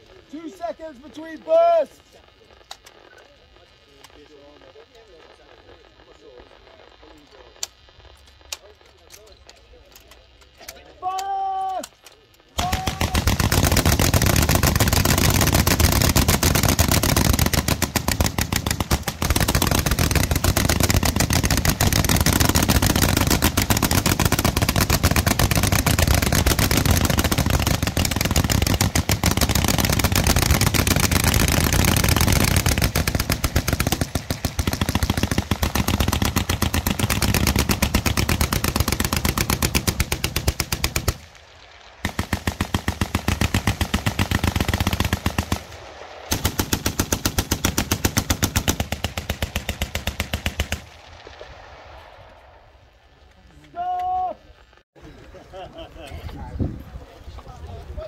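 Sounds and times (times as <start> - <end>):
machine guns firing: 11.8 - 52.8.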